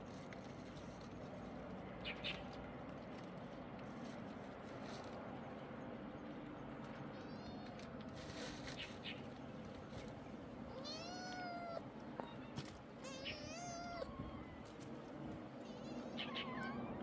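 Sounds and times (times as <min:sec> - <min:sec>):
kitten meowing: 0:10.8 - 0:14.6.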